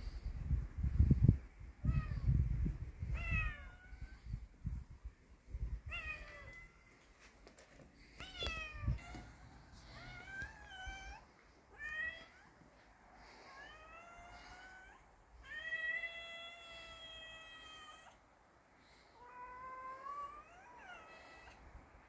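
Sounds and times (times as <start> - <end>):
cat meowing: 3.1 - 4.2, 5.9 - 7.0, 8.2 - 12.6, 13.5 - 18.2, 19.2 - 21.7.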